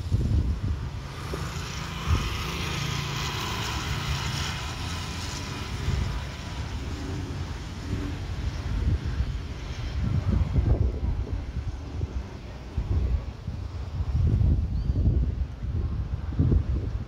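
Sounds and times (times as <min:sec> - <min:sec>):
wind buffeting microphone: 0:00.0 - 0:17.0
jet engines whining: 0:00.6 - 0:14.2.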